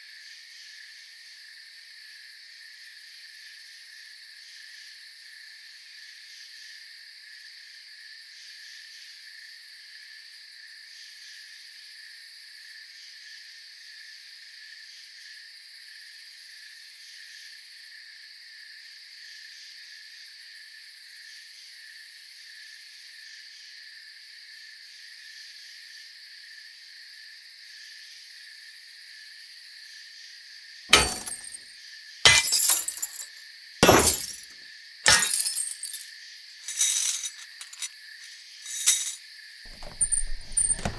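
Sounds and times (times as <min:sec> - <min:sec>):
loud breaking crash: 0:30.9 - 0:31.6, 0:32.3 - 0:34.4.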